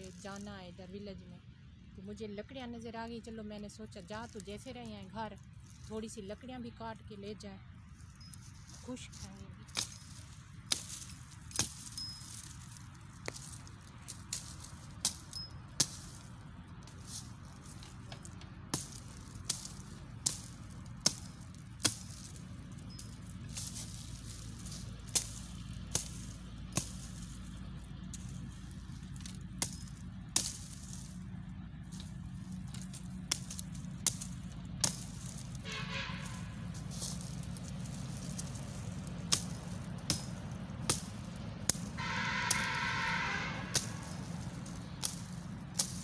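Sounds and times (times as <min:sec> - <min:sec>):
low rumble: 0:07.7 - 0:46.0
hatchet chopping dry brushwood: 0:09.7 - 0:16.2, 0:17.6 - 0:27.6, 0:37.0 - 0:42.8.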